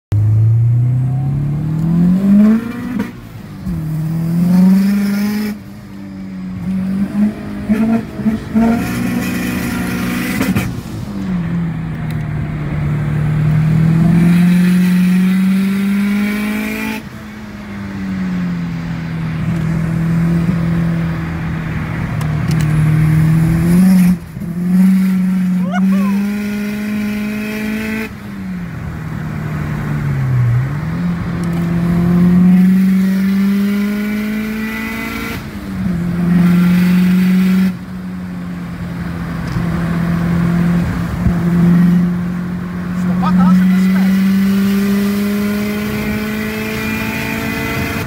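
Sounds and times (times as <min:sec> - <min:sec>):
car engine revving through gears: 0:00.2 - 0:05.7, 0:06.5 - 0:10.8, 0:12.8 - 0:17.1, 0:22.2 - 0:28.2, 0:29.3 - 0:37.9, 0:38.7 - 0:48.0.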